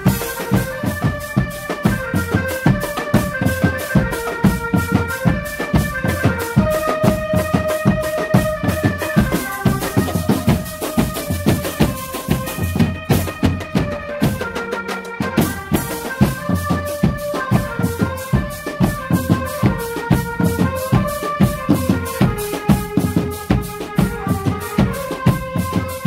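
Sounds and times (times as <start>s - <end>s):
drums beating rapid rhythm: 0.0s - 26.0s.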